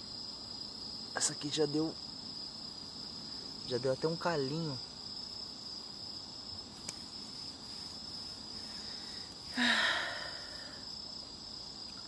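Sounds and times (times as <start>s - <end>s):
crickets chirring: 0.0s - 12.0s
man sighing: 9.5s - 10.8s.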